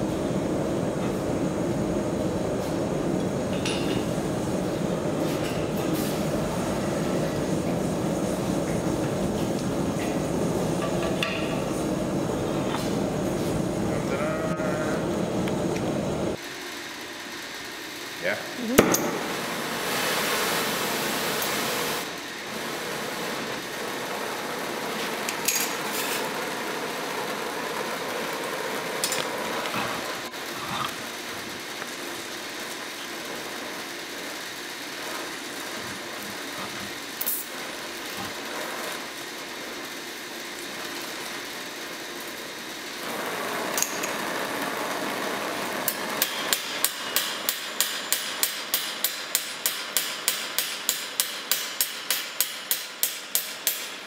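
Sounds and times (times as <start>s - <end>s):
torch hissing: 0.0s - 16.5s, 18.5s - 49.5s
hammer striking hot rivet: 45.8s - 54.0s.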